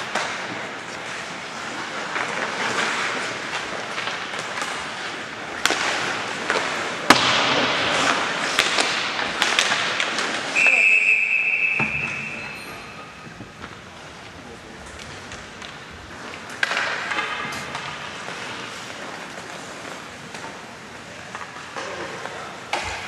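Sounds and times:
hockey sticks and puck clacking: 0:00.0 - 0:23.0
referee's whistle blast: 0:10.6 - 0:13.1.

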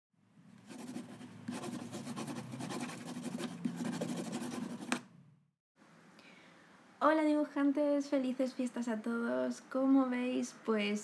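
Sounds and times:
pencil scribbling on paper: 0:00.7 - 0:05.0.

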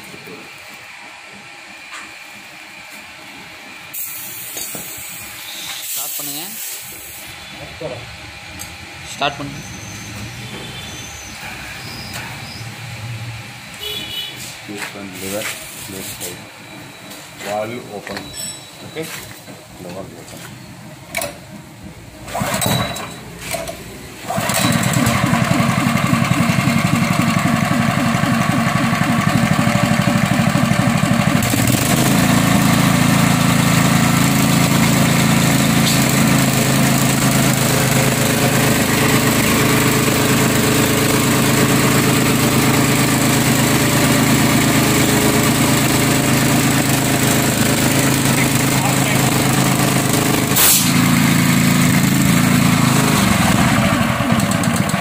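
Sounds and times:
air compressor pump running: 0:00.0 - 0:18.2, 0:21.1 - 0:55.0
petrol engine pull-started: 0:22.3 - 0:34.3, 0:52.6 - 0:55.0.

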